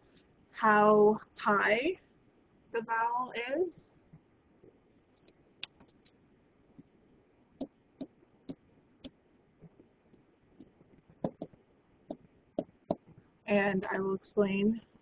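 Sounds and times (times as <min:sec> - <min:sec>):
stylus tapping on tablet screen: 0:07.6 - 0:13.3.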